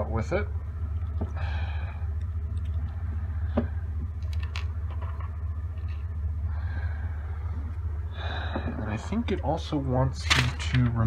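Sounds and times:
steady low hum: 0.0 - 11.0
small metal parts clicking: 4.2 - 6.0.

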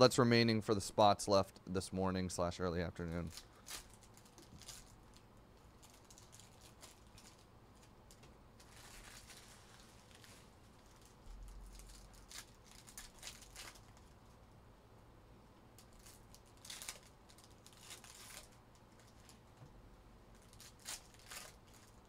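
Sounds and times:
wrappers and cards rustling: 3.1 - 14.4, 15.8 - 19.6, 20.3 - 22.0.

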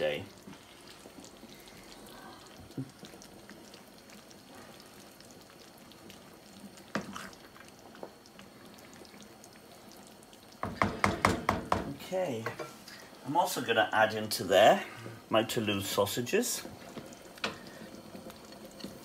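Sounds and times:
spoon knocking on metal pan: 10.6 - 12.7.

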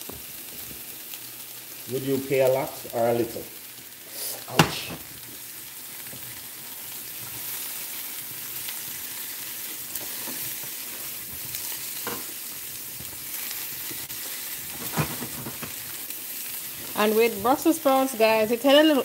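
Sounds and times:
vegetables sizzling in frying pan: 0.0 - 19.0
spatula scraping pan: 9.9 - 12.4, 14.1 - 15.8.

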